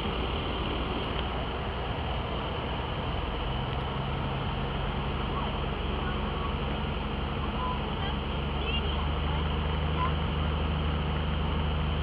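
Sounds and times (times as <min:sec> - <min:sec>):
airplane engine and propeller droning: 0:00.0 - 0:12.0.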